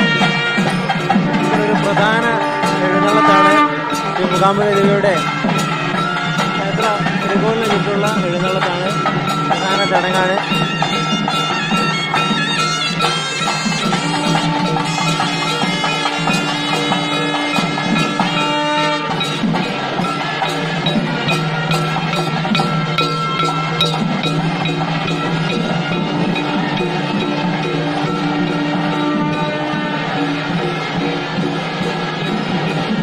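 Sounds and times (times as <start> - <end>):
barrel drums beating: 0.0 - 33.0
shrill reed pipe melody: 0.0 - 33.0.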